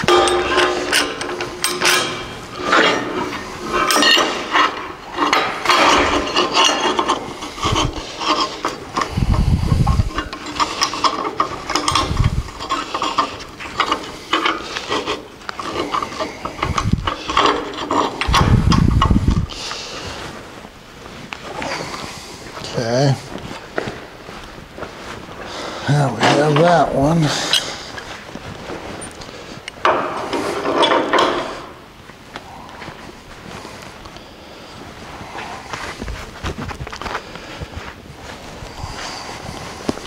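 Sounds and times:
metal clicking scraping and rattling: 0.0s - 31.8s.

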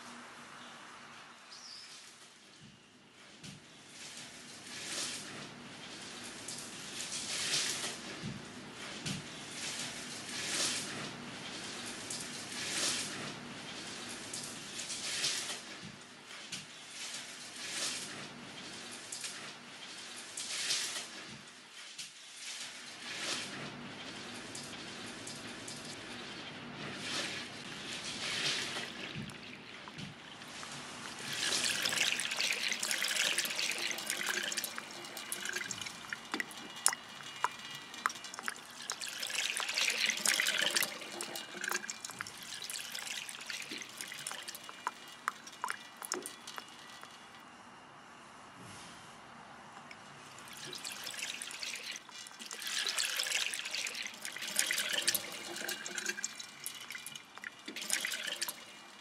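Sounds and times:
cloth squelching in soapy water: 27.1s - 47.2s, 50.3s - 58.7s
water streaming into basin: 27.2s - 47.4s, 50.2s - 59.0s
water dripping: 28.1s - 47.4s, 49.8s - 59.0s.

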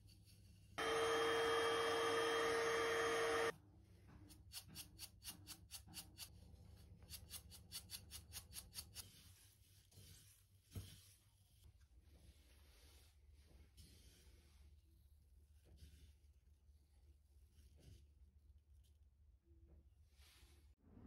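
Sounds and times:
small appliance motor humming: 0.8s - 3.5s.

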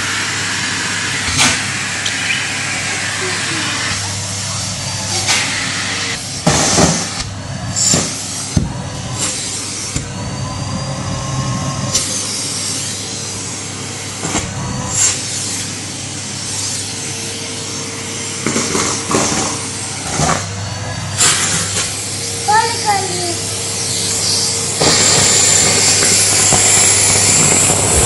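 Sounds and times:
vacuum cleaner running: 0.0s - 28.0s.

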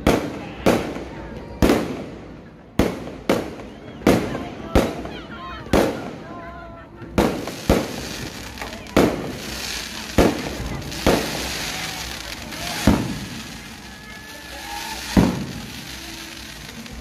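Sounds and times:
fireworks bangs: 7.1s - 17.0s
steady hiss: 7.3s - 17.0s.

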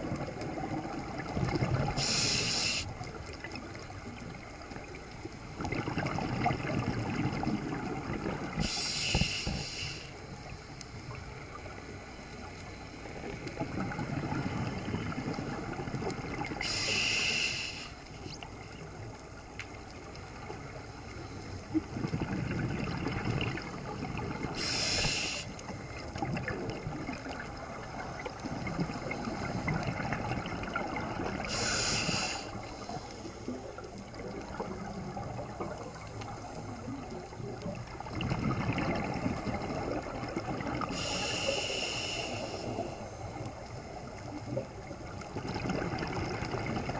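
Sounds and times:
bubbling exhaled air underwater: 0.0s - 10.0s, 13.1s - 19.0s, 21.6s - 46.9s
regulator hissing inhalations: 2.0s - 2.9s, 8.6s - 10.2s, 16.6s - 18.1s, 24.6s - 25.6s, 31.4s - 33.3s, 40.9s - 43.1s.

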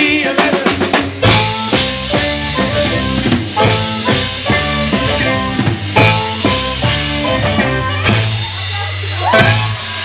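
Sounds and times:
drum kit: 0.0s - 10.0s
electric guitar: 0.6s - 10.0s
alto saxophone: 1.2s - 8.5s.

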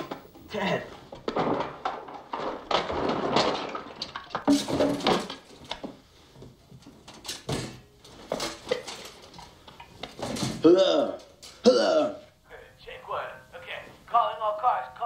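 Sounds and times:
things rummaged in wooden toy chest: 1.2s - 10.6s.

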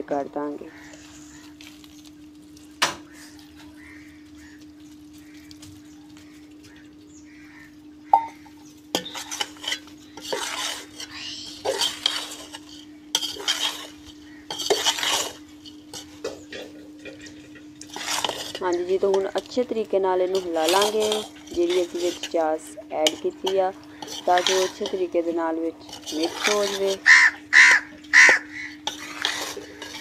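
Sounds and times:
steady low hum: 0.0s - 30.0s
metal skimmer scraping in pot: 8.8s - 30.0s.

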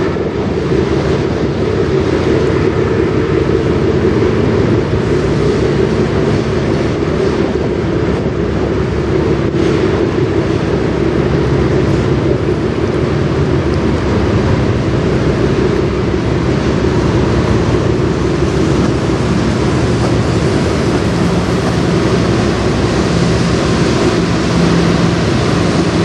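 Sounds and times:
diesel engines droning: 0.0s - 26.0s.

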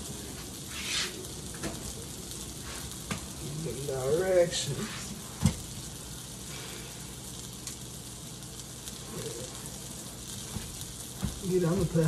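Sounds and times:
sausages sizzling in a frying pan: 0.0s - 12.0s.

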